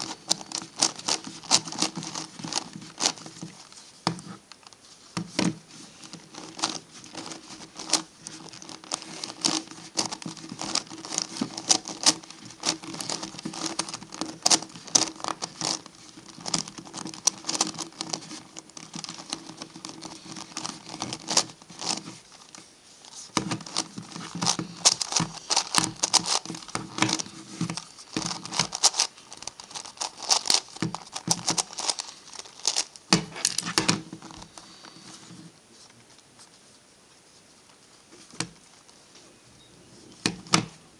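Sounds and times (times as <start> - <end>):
puzzle pieces clicking: 23.6 - 33.7.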